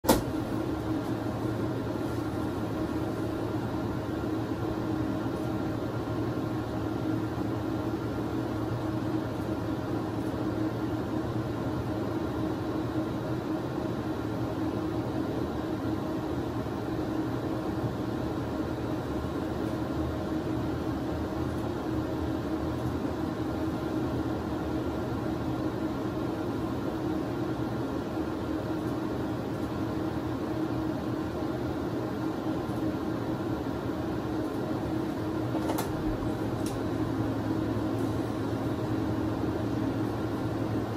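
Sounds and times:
machine hum: 0.0 - 40.9.

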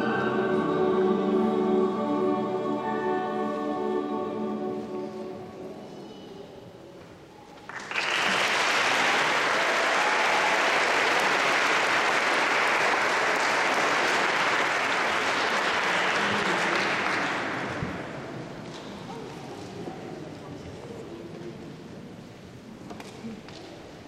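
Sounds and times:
audience applauding: 7.6 - 18.1.

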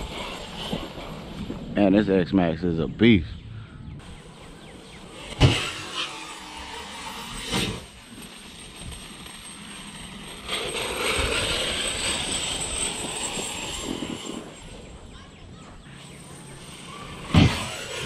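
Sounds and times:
drone propellers: 0.0 - 1.8, 3.6 - 18.0
toy truck electric motor whirring: 5.0 - 18.0.

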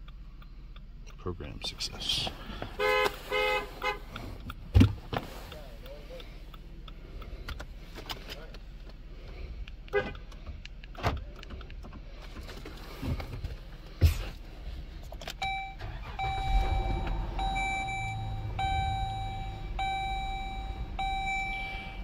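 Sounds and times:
car engine idling: 0.0 - 22.0
sharp clicks: 3.8 - 12.4
dashboard warning chime: 15.4 - 22.0.

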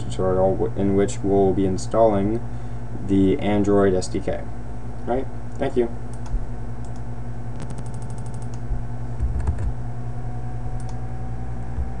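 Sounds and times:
steady low hum: 0.0 - 12.0
keyboard and mouse clicks: 7.6 - 8.6, 9.2 - 9.7.

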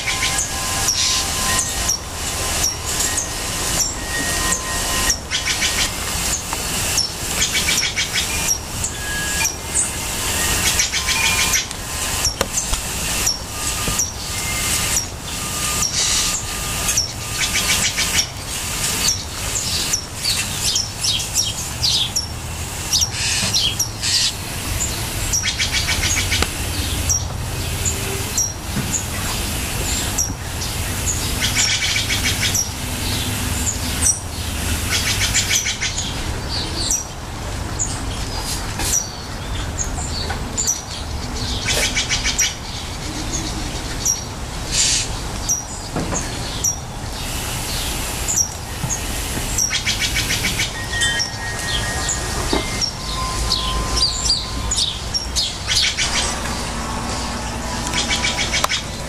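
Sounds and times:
jays calling harshly: 0.0 - 37.2, 46.3 - 59.0
low steady rumble: 52.8 - 59.0.

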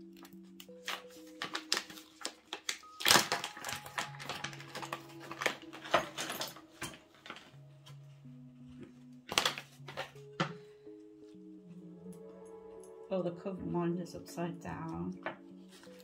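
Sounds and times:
paper pouch crinkling: 0.0 - 8.0, 8.8 - 10.4, 15.6 - 16.0
soft background music: 0.0 - 16.0.

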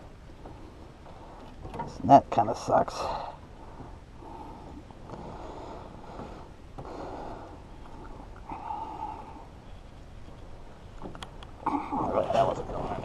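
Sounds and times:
person breathing hard through nose: 3.1 - 9.5.

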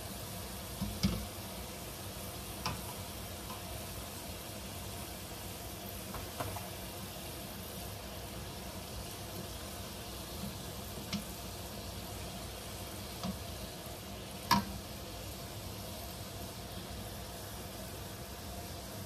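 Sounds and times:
deep-frying sizzle: 0.0 - 19.0
skimmer knocking against wok: 14.5 - 14.7.

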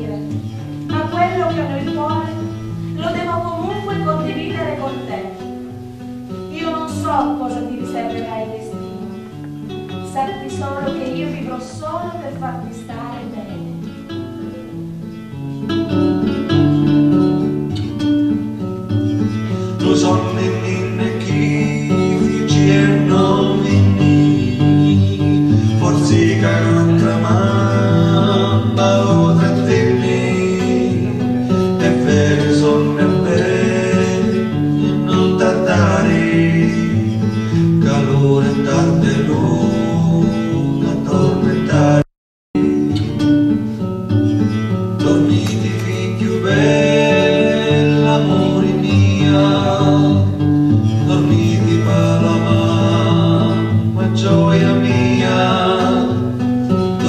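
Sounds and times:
acoustic guitar music: 0.0 - 57.0
man singing: 19.2 - 43.0, 45.0 - 57.0.

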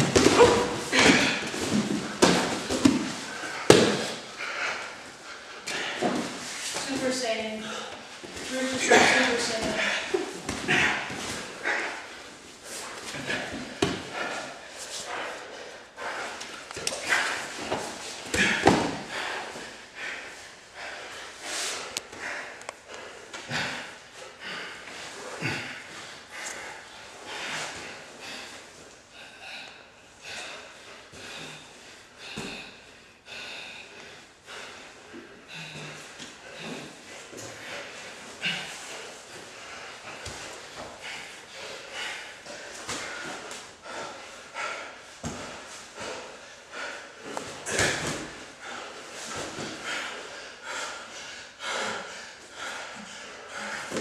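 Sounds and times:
bodies thumping on mats: 0.0 - 4.3
heavy breathing: 0.0 - 54.0.

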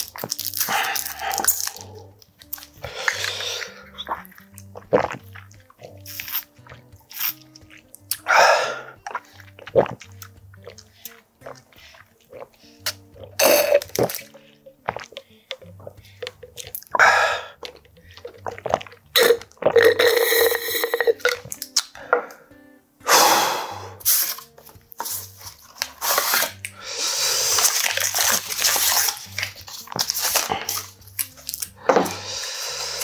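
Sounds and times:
wrapper crinkling and tearing: 0.0 - 3.4, 24.1 - 26.7, 27.4 - 31.8
person swallowing: 0.7 - 22.4, 31.7 - 32.4.

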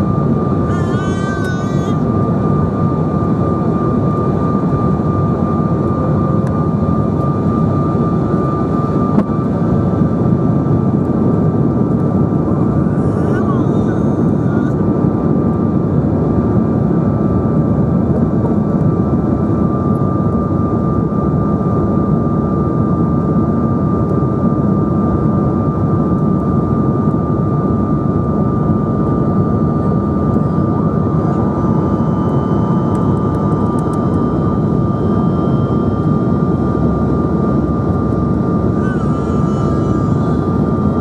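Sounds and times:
jet engine roar in cabin: 0.0 - 41.0
steady high whine: 0.0 - 41.0.

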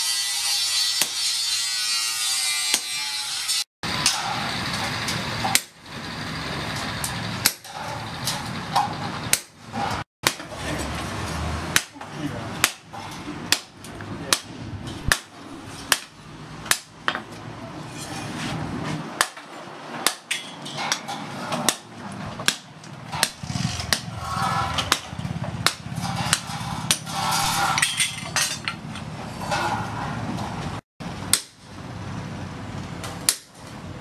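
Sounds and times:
hammer striking steel: 0.3 - 4.5, 11.7 - 17.3, 19.2 - 30.0.

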